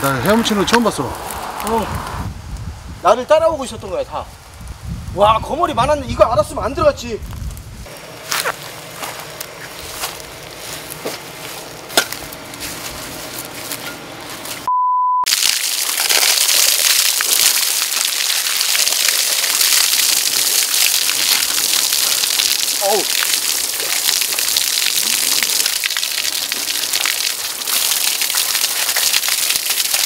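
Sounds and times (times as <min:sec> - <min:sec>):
grass rustling: 0:07.2 - 0:14.7
water pouring and splashing: 0:15.3 - 0:30.0.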